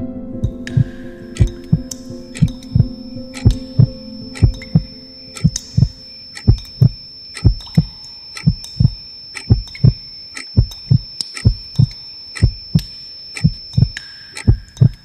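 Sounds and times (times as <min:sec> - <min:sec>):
heartbeat double thump: 0:00.4 - 0:10.0, 0:10.6 - 0:12.8
high thin ringing tone: 0:02.4 - 0:15.0.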